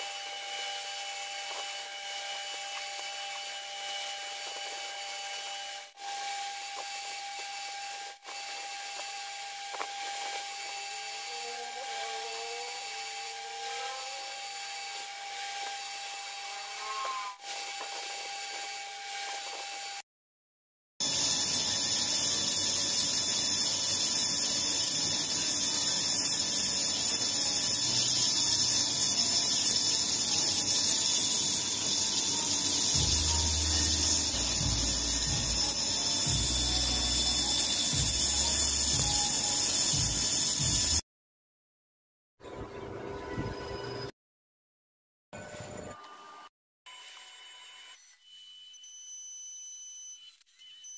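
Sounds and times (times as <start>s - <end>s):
steady workshop hum: 0.0s - 20.0s, 21.0s - 41.0s.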